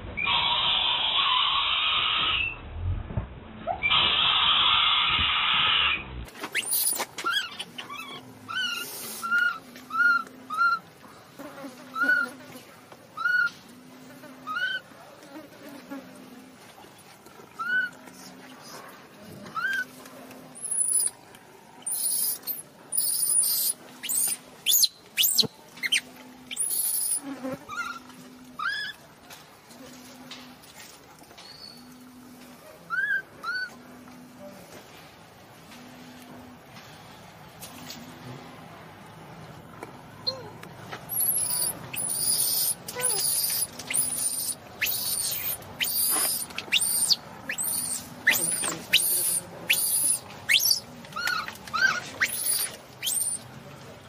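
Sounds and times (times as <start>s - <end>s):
harsh noisy monkey cry: 3.8s - 10.8s, 14.4s - 14.8s, 21.8s - 29.0s, 32.9s - 33.7s, 41.1s - 53.4s
squeaky monkey calls: 6.5s - 10.8s, 13.2s - 13.6s, 14.5s - 14.8s, 17.6s - 18.0s, 19.6s - 19.9s, 20.6s - 21.1s, 21.9s - 29.0s, 32.9s - 33.8s, 41.1s - 53.4s.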